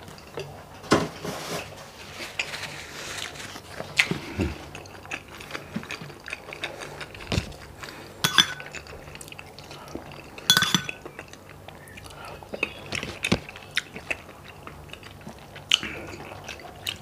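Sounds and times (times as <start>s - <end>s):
chewing: 2.3s - 17.0s
glass dish clinking: 8.2s - 8.7s, 10.5s - 11.0s.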